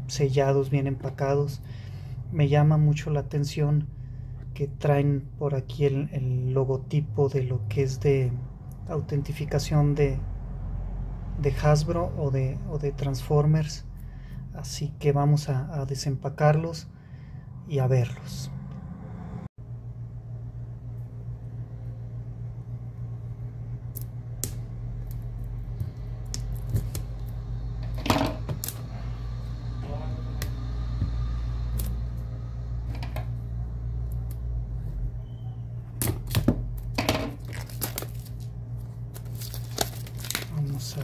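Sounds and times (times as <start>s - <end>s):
steady low hum: 12.0s - 41.0s
plastic wrap crinkling: 37.3s - 41.0s.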